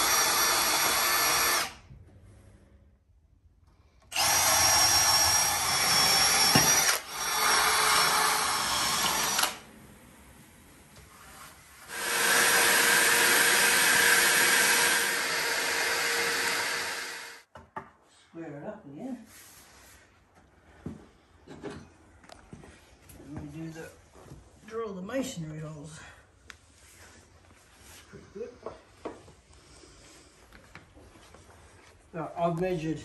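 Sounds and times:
cordless drill boring into concrete: 0.0 - 1.8, 4.1 - 9.6, 11.8 - 17.5.

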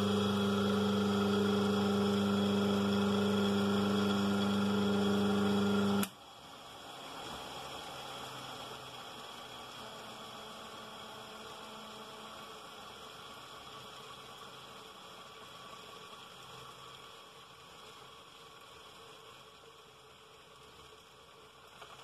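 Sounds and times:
electric motor humming: 0.0 - 6.1.

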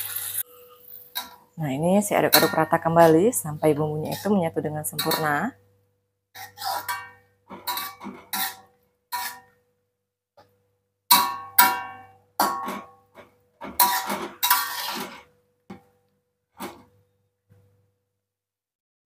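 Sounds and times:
spatula scraping a metal wok: 2.2 - 5.4, 6.3 - 9.6, 11.2 - 15.4.

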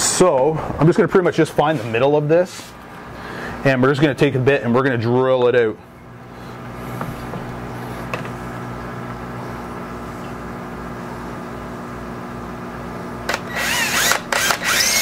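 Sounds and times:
cordless drill boring into acrylic: 13.3 - 15.0
drill bit squealing: 13.5 - 15.0.

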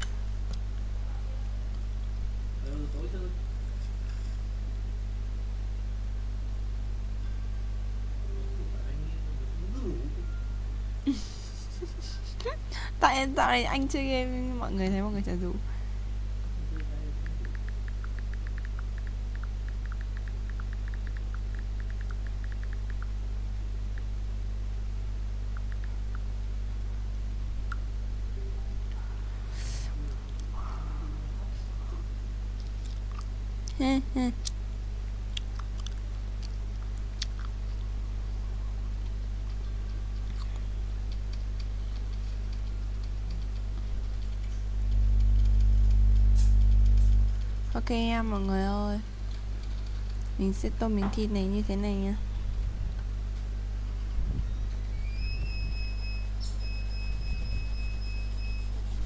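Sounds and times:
electrical mains hum: 0.0 - 59.0
faint clicks: 16.8 - 23.2, 25.5 - 26.2, 39.0 - 47.5
quick light ticks: 16.8 - 23.2, 39.0 - 47.5.

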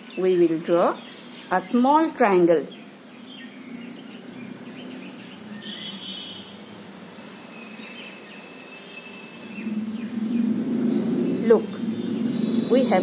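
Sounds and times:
steady background noise: 0.0 - 13.0
bird trill: 2.7 - 6.6, 7.4 - 13.0
faint bird chirps: 2.7 - 6.6, 7.4 - 13.0.

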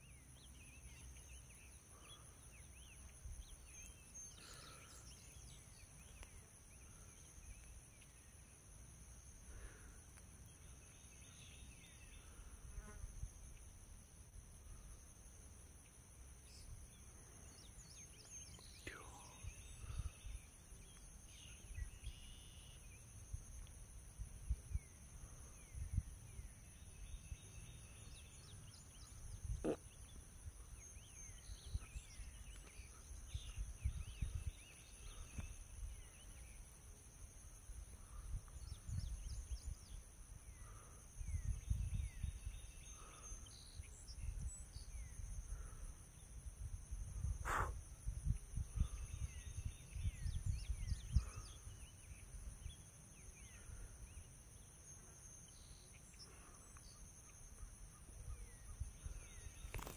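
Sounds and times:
insect chorus: 0.0 - 59.9
small bird chirps: 17.4 - 22.9.

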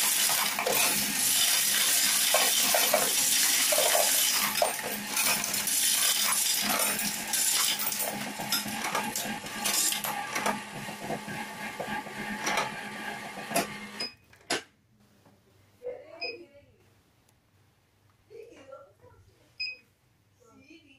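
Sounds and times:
coins clattering: 0.0 - 10.1
coin sorter motor hum: 0.0 - 14.0.

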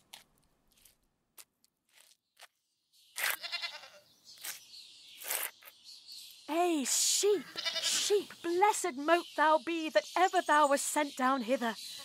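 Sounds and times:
sheep bleating: 3.4 - 4.0, 7.4 - 8.1.

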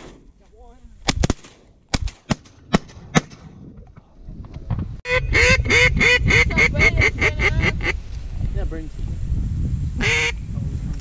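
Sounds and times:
wind rumble on microphone: 2.9 - 11.0.

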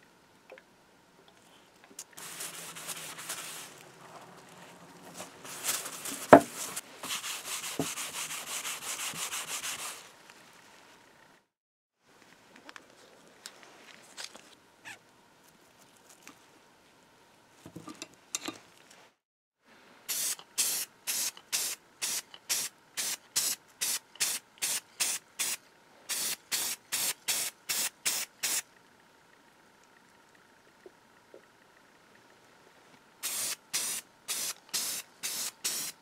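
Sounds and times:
short spray paint bursts: 20.1 - 28.6, 33.2 - 36.0.

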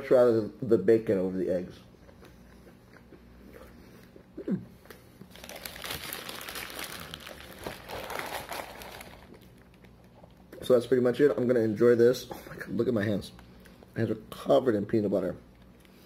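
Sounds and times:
paper wrapper crinkling: 5.3 - 10.3.

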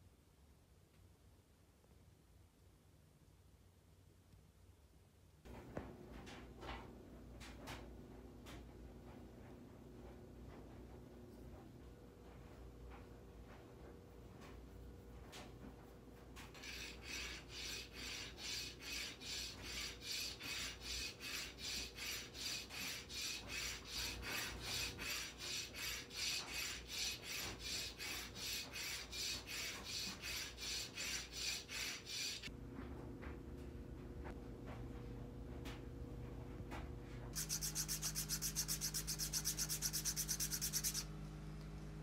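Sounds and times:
stone scraping against file: 16.5 - 32.5, 37.4 - 41.1.

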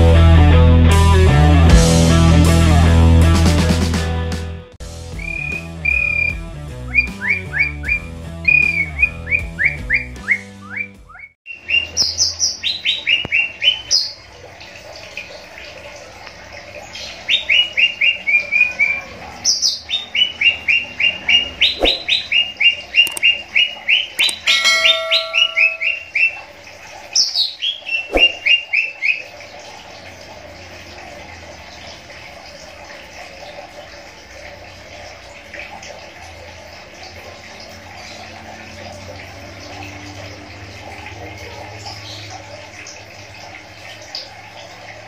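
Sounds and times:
music: 0.0 - 11.3
birds chirping song: 5.1 - 14.3, 16.8 - 26.4.

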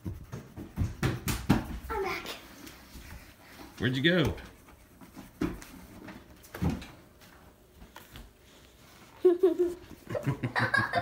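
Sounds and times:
child's voice: 1.9 - 2.6.

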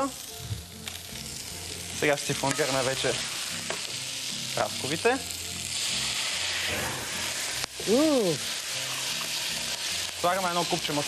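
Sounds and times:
alcohol catching flame: 0.0 - 10.7
fruit sizzling in a frying pan: 0.0 - 11.0
person saying ooh: 7.8 - 8.4.

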